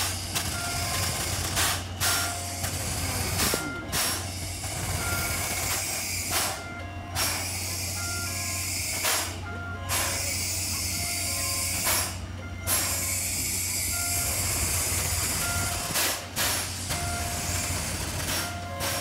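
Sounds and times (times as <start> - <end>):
steam locomotive hissing: 0.0 - 19.0
faint short beeping tones: 2.0 - 16.0.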